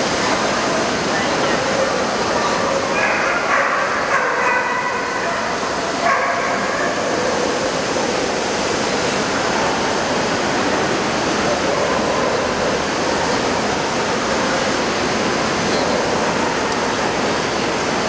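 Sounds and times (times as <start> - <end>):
hubbub of crowded hall: 0.0 - 18.0
dog yipping and barking: 3.0 - 7.1.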